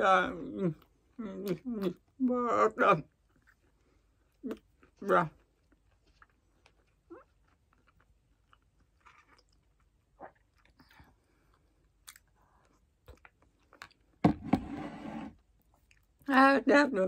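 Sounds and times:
chewing and mouth sounds: 3.0s - 14.2s, 15.4s - 16.4s.

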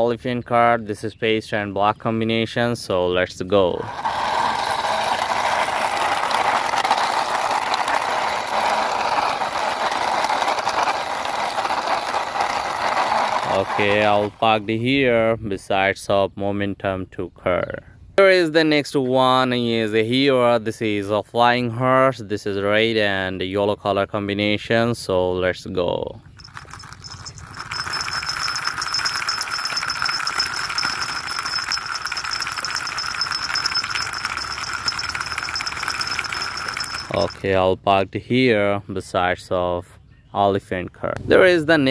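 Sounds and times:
toy car rolling on stone: 3.6s - 14.7s, 26.2s - 37.6s
fast continuous clicking: 4.0s - 14.4s, 26.3s - 37.4s
small bell jingling: 26.3s - 37.5s.

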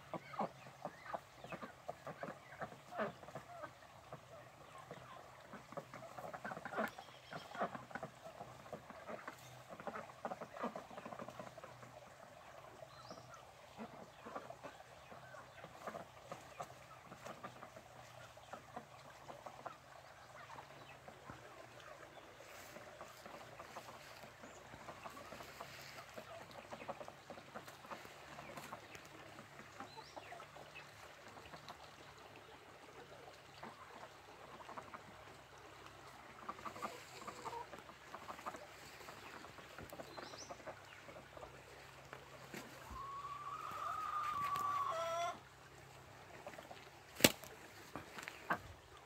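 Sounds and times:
ducks quacking: 0.0s - 49.0s.

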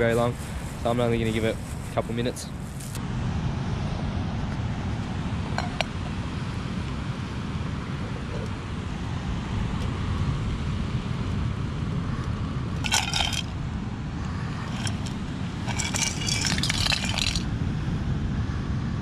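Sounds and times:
shells clattering in metal pan: 12.8s - 13.5s, 14.7s - 17.4s.

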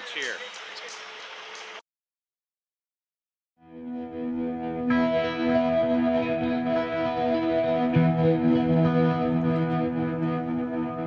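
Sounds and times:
distorted electric guitar music: 3.7s - 11.0s.

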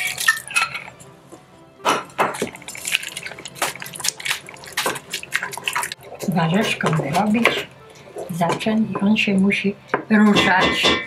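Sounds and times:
wooden spoon scraping enamel pot: 1.9s - 9.1s.

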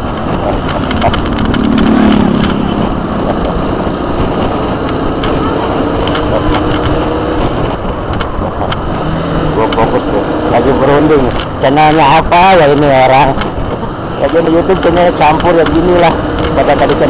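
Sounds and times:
motorcycle engine running: 0.0s - 17.0s
wind noise on microphone: 0.0s - 17.0s
sharp clicks: 0.5s - 4.0s, 6.0s - 7.1s, 7.8s - 8.9s.

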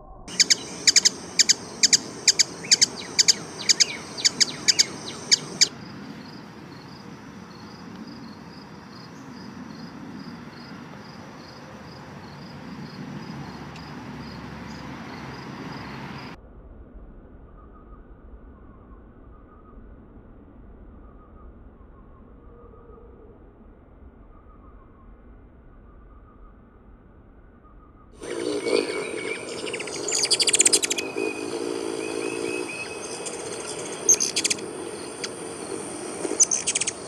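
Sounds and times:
faint even chirping: 0.2s - 9.9s, 28.2s - 37.0s
hummingbird chirps: 0.3s - 5.7s, 28.2s - 37.0s
steady outdoor hiss: 0.3s - 16.4s, 28.2s - 37.0s.

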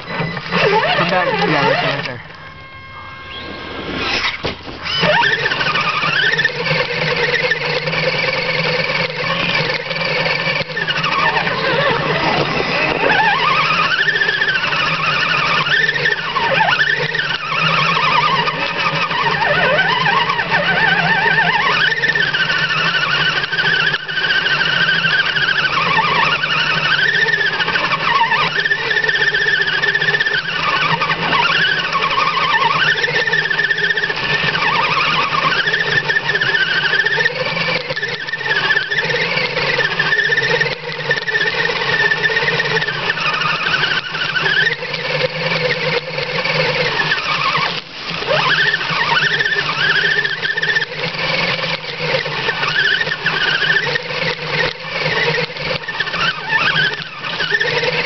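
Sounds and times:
electric motor and gear whine: 0.0s - 58.0s.

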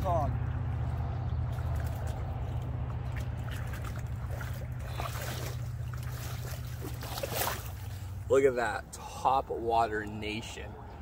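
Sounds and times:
water sloshing and dripping: 0.4s - 8.3s.

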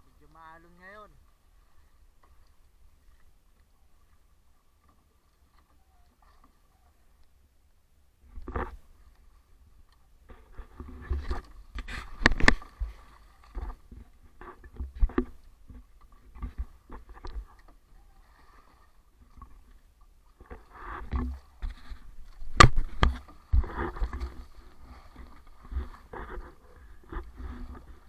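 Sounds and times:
knocks and scrapes on boat hull: 10.2s - 17.8s, 20.4s - 28.0s.

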